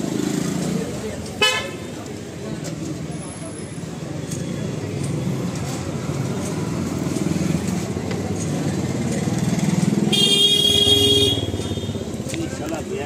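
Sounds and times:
vehicle horn: 0:10.1 - 0:12.0.

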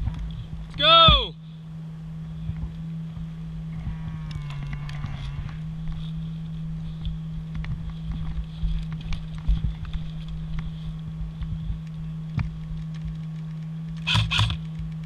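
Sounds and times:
steady low hum: 0:00.0 - 0:15.0
distant wavering call: 0:00.8 - 0:07.0, 0:14.0 - 0:14.6
footsteps in grass: 0:02.2 - 0:15.0.

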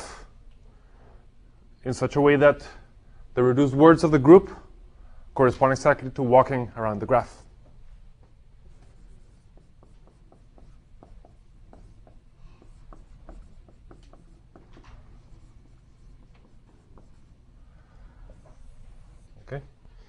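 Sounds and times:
writing taps and scratches on board: 0:08.2 - 0:17.4, 0:18.2 - 0:19.2.

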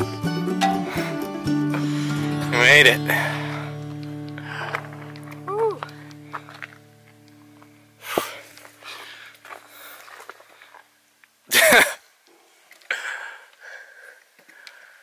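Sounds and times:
background music: 0:00.0 - 0:08.4.

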